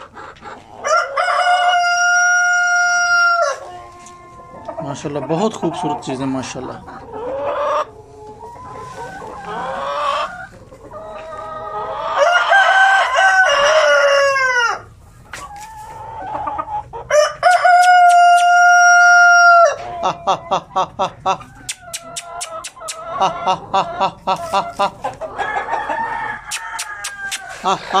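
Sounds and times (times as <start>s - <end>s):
hens clucking: 0.0s - 28.0s
rooster crowing: 0.8s - 3.7s, 12.2s - 14.9s, 17.1s - 19.8s, 25.4s - 27.7s.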